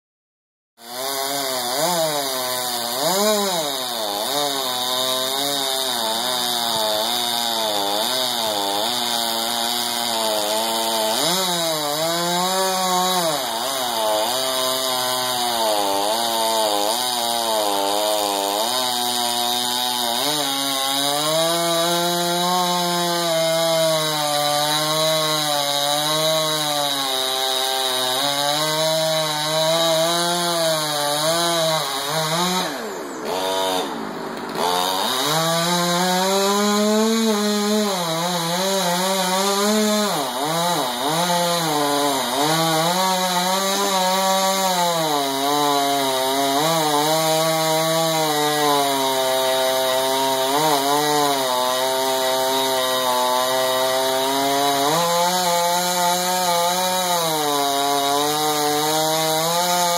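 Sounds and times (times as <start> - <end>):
chainsaw cutting wood: 0.8 - 59.9.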